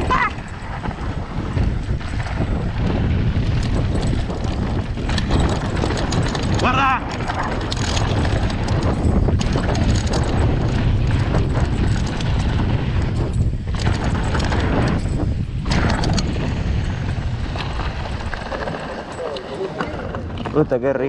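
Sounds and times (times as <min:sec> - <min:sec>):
bike clicking and rattling: 0:00.0 - 0:21.0
wind buffeting microphone: 0:00.0 - 0:21.0
tyres crunching over dirt and stones: 0:01.8 - 0:21.0.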